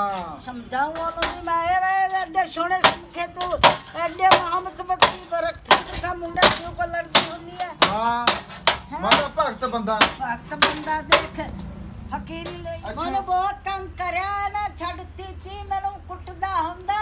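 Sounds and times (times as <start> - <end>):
hammer beating sheet metal: 1.0 - 1.6, 2.7 - 9.4, 10.0 - 11.4.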